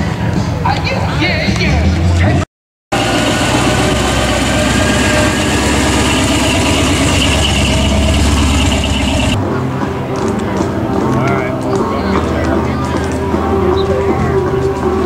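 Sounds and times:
car engine idling with deep rumble: 3.0s - 9.4s.

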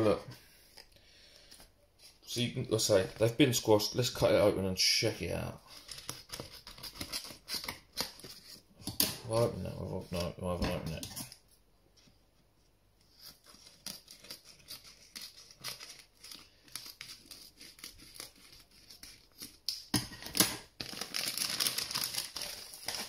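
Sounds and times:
plastic bag crinkling: 20.2s - 23.0s.

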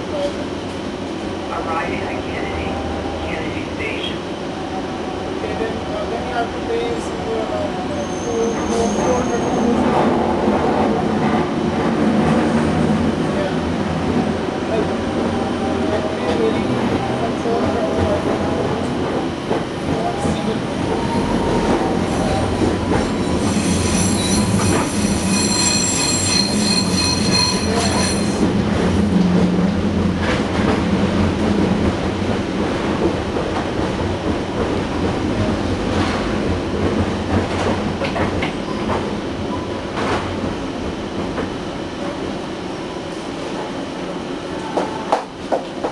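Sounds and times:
train rolling rumble with hum: 0.0s - 45.9s
high wheel squeal: 23.0s - 28.4s.

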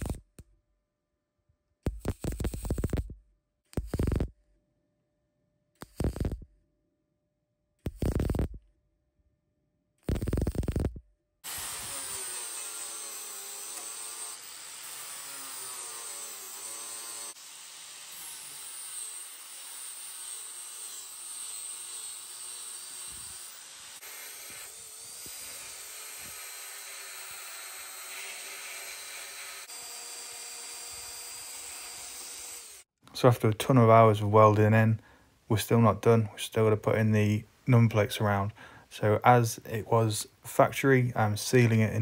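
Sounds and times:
angle grinder grinding steel: 11.4s - 32.9s
belt file sanding metal: 11.5s - 29.8s.

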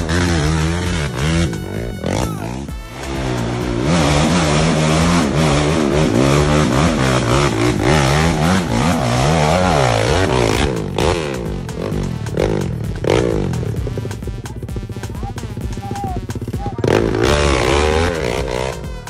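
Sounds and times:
quad engine revving: 0.0s - 19.0s.

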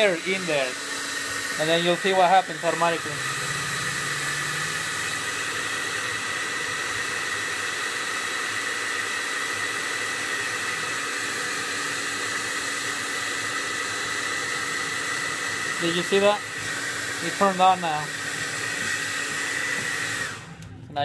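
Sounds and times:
hair dryer blowing: 0.0s - 20.8s.

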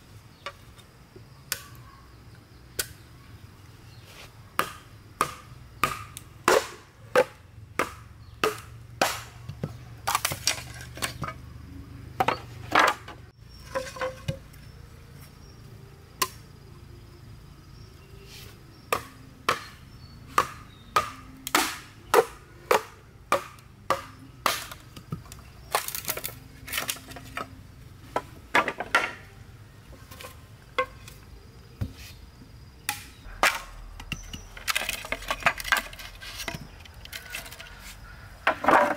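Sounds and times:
blade chopping bamboo: 4.6s - 11.3s, 18.9s - 27.2s.

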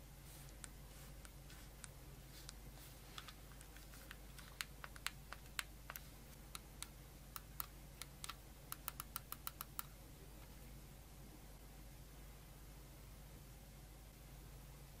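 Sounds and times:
controller buttons clicking: 3.2s - 10.0s.

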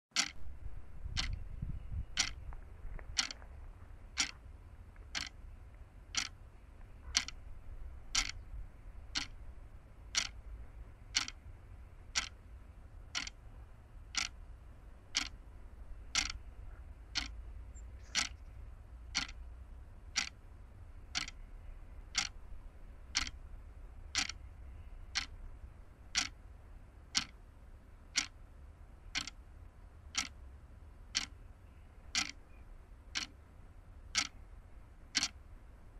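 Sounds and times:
sharp ticks: 0.1s - 3.5s, 4.1s - 4.4s, 5.0s - 9.4s, 10.0s - 12.4s, 13.1s - 13.4s, 14.0s - 14.4s, 15.1s - 19.5s, 20.1s - 20.4s, 21.0s - 21.5s, 22.1s - 25.4s, 26.1s - 26.4s, 27.1s - 27.4s, 28.1s - 28.4s, 29.0s - 29.4s, 30.1s - 30.4s, 31.1s - 31.4s, 32.1s - 32.4s, 33.1s - 33.4s, 34.1s - 34.4s, 35.1s - 35.4s.

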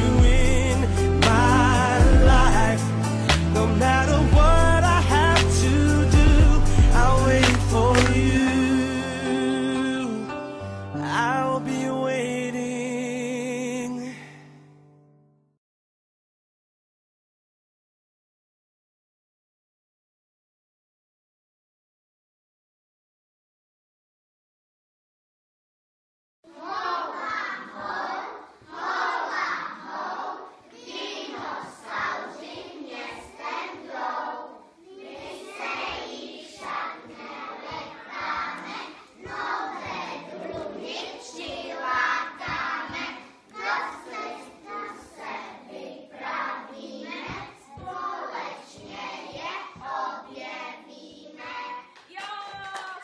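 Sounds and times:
children chanting in unison: 26.5s - 51.9s.

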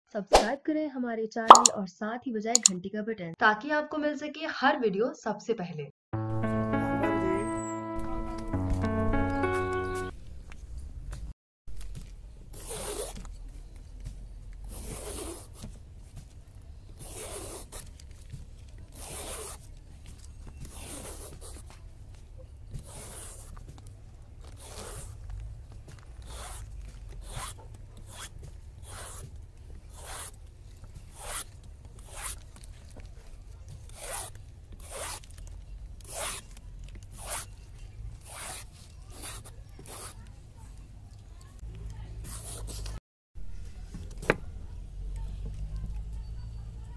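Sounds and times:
peeler scraping gourd skin: 33.8s - 40.2s.

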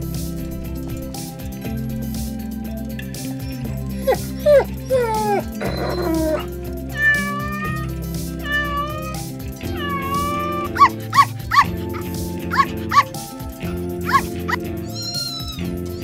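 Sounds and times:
background music: 0.0s - 16.0s
cat meowing: 4.0s - 13.1s, 14.1s - 16.0s.

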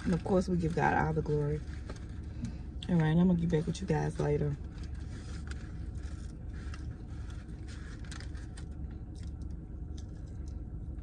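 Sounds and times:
paper wrapper crinkling: 0.0s - 10.6s
low car interior hum: 0.0s - 11.0s.

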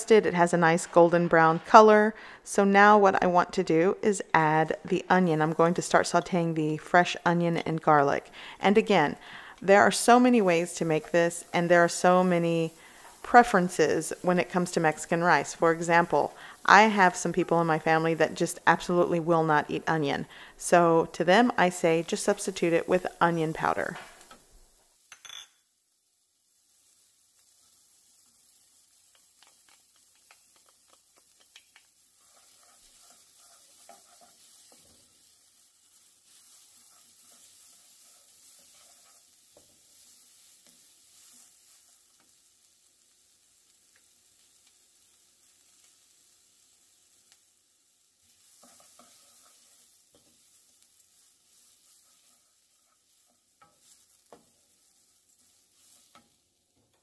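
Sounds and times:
rice and onion sizzling in oil: 0.0s - 57.0s
wooden spoon stirring and scraping: 0.4s - 2.1s, 8.1s - 24.7s, 27.4s - 42.5s, 48.2s - 56.4s.

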